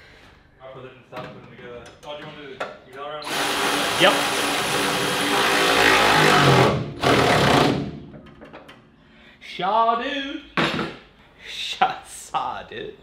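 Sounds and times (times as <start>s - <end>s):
power tool whirring: 3.2s - 7.9s.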